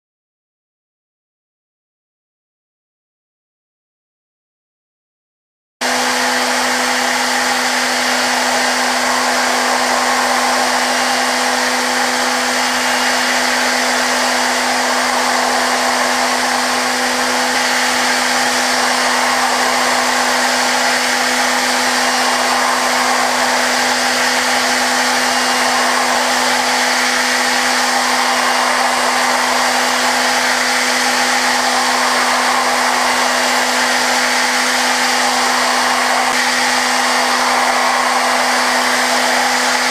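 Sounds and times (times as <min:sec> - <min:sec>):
machine spindle high hum: 0:05.8 - 0:39.9
dense cutting hiss: 0:08.1 - 0:39.9.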